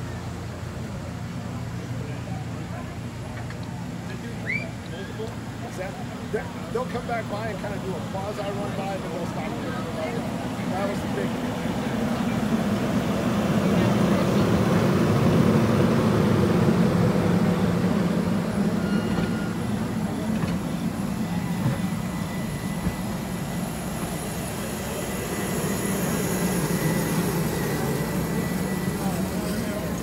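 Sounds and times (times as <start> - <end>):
train wheels rumbling on rails: 12.5 - 26.2.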